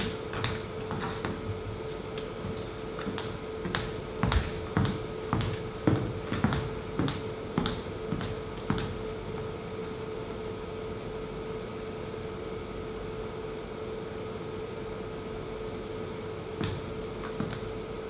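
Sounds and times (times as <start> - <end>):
footsteps on stage floor: 0.0 - 10.0, 16.0 - 17.8
steady hum: 0.0 - 18.0.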